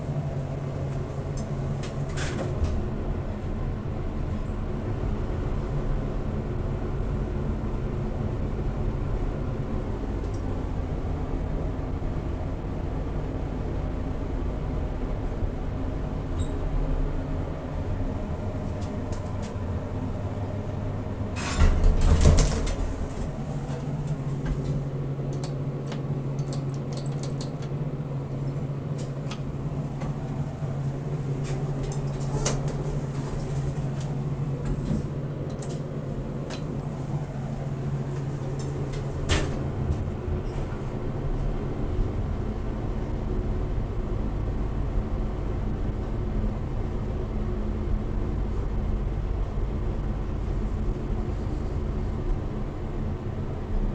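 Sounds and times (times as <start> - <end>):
elevator doors clattering: 0.0 - 4.8, 17.8 - 27.8, 28.9 - 41.0.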